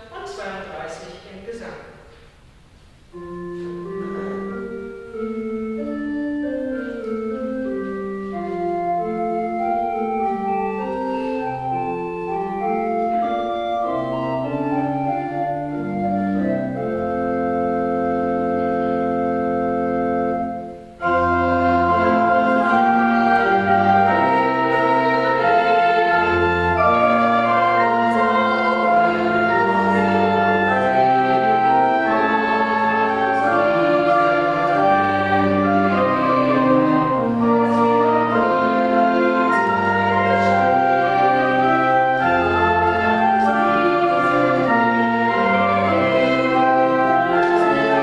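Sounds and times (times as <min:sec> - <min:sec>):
church organ chords: 0:03.0 - 0:48.0.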